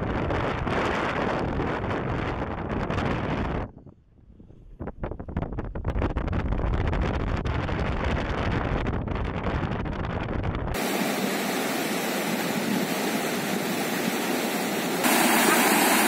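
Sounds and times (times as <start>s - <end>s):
wind buffeting microphone: 0.0s - 11.4s
river rapids rushing over rocks: 10.8s - 16.0s.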